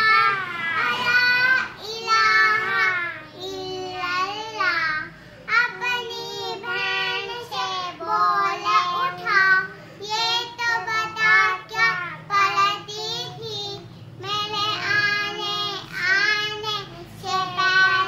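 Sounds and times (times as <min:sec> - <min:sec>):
girls singing chant-like melody: 0:00.0 - 0:13.4.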